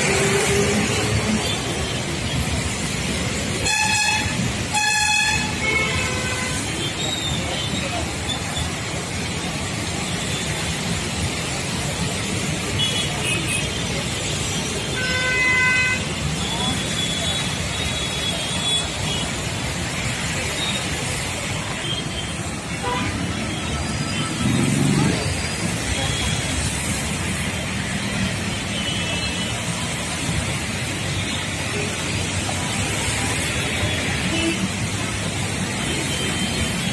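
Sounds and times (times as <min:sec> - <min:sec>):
vehicle engines in traffic: 0:00.0 - 0:36.9
vehicle horn: 0:03.6 - 0:06.6.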